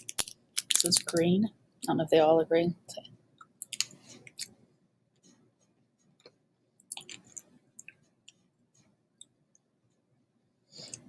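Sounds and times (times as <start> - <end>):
candy clicking against teeth: 0.0 - 1.2, 3.4 - 4.5.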